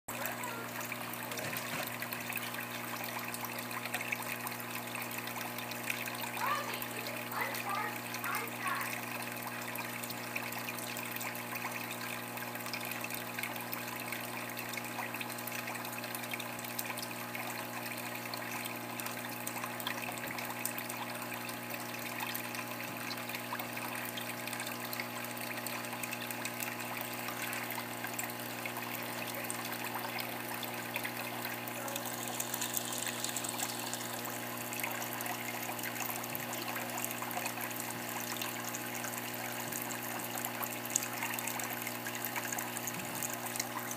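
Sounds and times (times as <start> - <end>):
electric pump hum: 0.1 - 43.9
water trickling and bubbling: 0.1 - 43.9.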